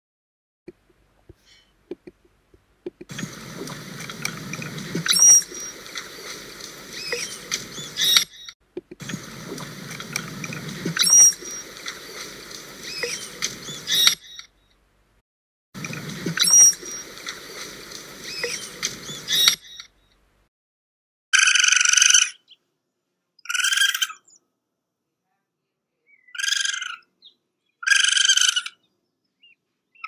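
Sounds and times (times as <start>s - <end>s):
low hiss: 0.7s - 8.2s, 8.9s - 14.2s, 15.8s - 19.6s
manatee squeaks and chirps: 3.1s - 8.5s, 10.5s - 11.9s, 12.8s - 14.5s, 16.2s - 19.9s.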